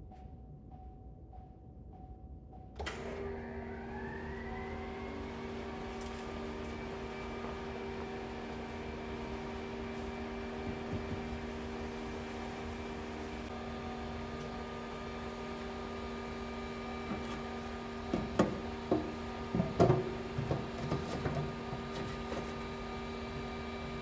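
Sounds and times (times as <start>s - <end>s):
electric pump humming: 2.8s - 24.0s
sharp knocks and clatters: 18.1s - 22.5s.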